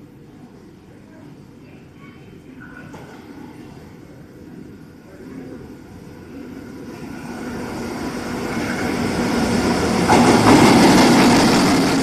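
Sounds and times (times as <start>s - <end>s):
freight train rumbling past: 5.2s - 12.0s.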